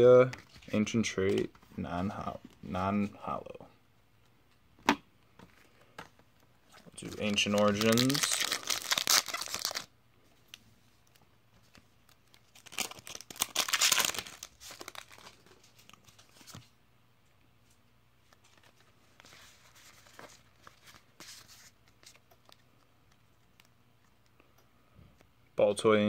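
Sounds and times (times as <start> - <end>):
cards rustling: 5.4 - 9.9, 11.1 - 16.7, 18.2 - 24.2
foil wrapper tearing open: 7.2 - 9.9, 12.5 - 15.5.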